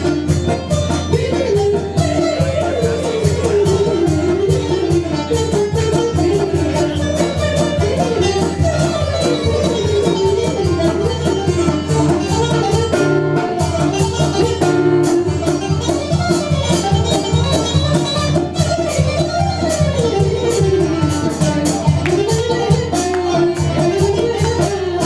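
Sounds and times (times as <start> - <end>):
bowed violin: 0.0 - 25.0
guitar: 0.0 - 25.0
hand drum beat: 0.0 - 25.0.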